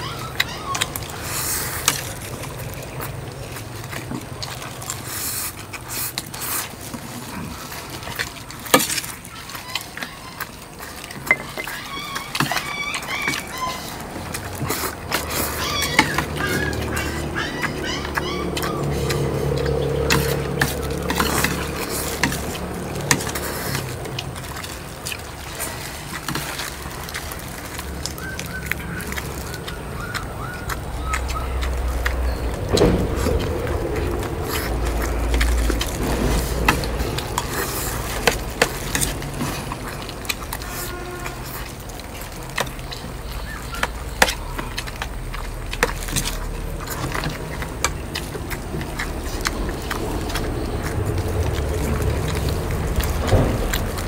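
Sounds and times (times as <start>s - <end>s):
outdoor background noise: 0.0s - 54.0s.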